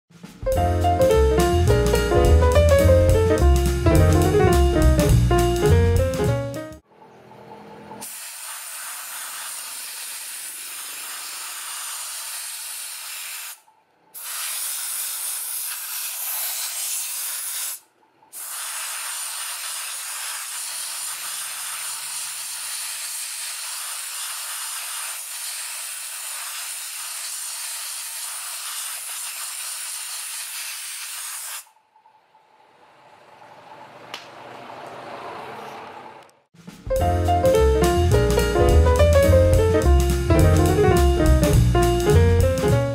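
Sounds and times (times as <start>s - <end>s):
compressed air hissing: 8.0s - 13.6s, 14.2s - 17.8s, 18.4s - 31.7s.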